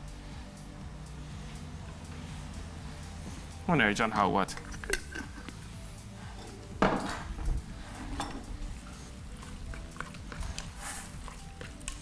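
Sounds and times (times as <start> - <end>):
spoon stirring in a pot: 8.0 - 12.0.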